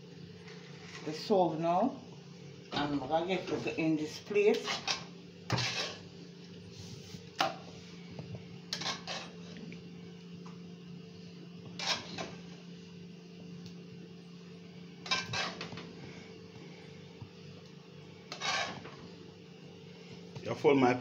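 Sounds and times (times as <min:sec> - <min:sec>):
steady low hum: 0:00.0 - 0:21.0
metal spoon scraping a pot: 0:04.5 - 0:06.1, 0:08.7 - 0:09.4, 0:11.8 - 0:12.4, 0:15.0 - 0:15.8, 0:18.3 - 0:18.9.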